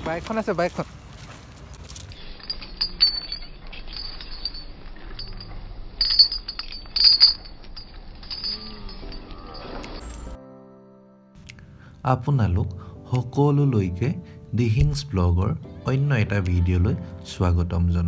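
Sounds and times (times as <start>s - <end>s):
chains clinking and clanking: 0.0s - 10.4s.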